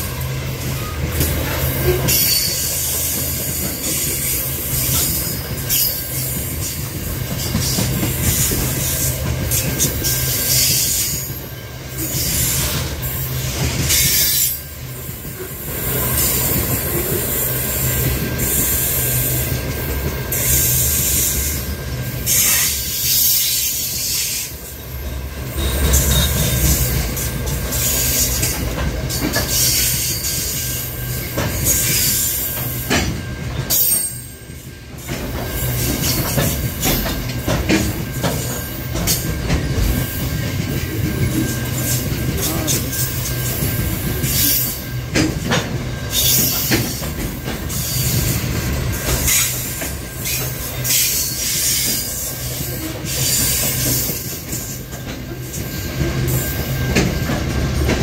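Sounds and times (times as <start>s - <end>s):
train wheels rumbling on rail: 0.0s - 58.0s
clicks at rail joints: 35.0s - 40.0s.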